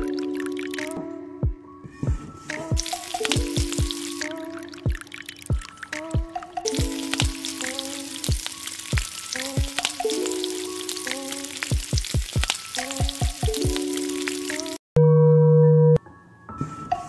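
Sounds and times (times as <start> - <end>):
background music with kick drum: 0.0 - 14.8
crackling sizzle: 2.8 - 6.1, 6.7 - 14.8.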